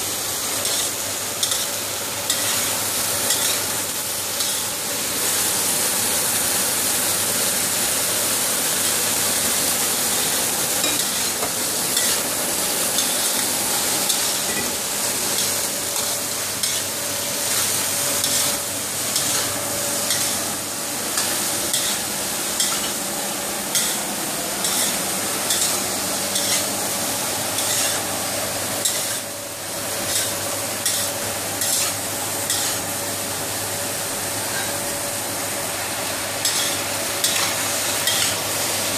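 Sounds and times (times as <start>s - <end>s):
food sizzling in a wok: 0.0s - 38.9s
spatula scraping a wok: 0.6s - 3.7s, 10.8s - 14.7s, 15.3s - 20.5s, 21.2s - 23.1s, 23.7s - 24.0s, 24.6s - 26.8s, 27.6s - 28.1s, 28.8s - 29.3s, 30.0s - 32.9s, 36.4s - 38.4s.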